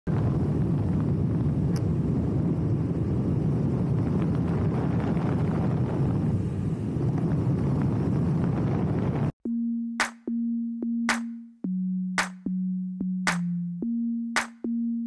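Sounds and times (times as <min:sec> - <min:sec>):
wind rushing over microphone: 0:00.1 - 0:09.4.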